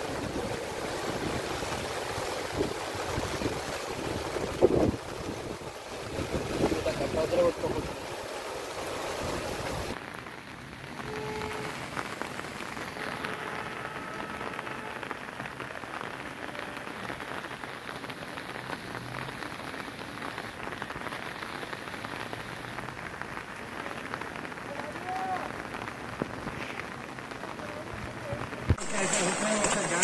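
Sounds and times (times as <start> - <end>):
heavy rain on standing water: 0.0 - 30.0.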